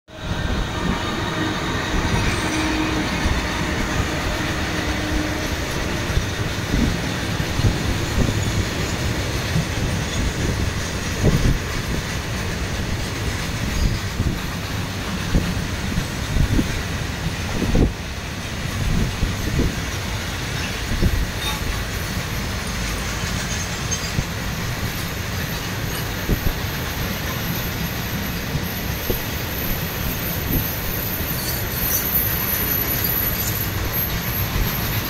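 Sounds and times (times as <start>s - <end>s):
passing freight train: 0.1s - 35.0s
train wheels rumbling on rails: 0.1s - 35.0s.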